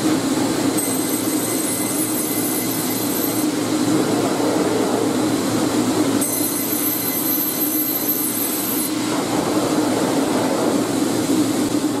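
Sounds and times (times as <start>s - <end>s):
high-pitched whine: 0.0s - 12.0s.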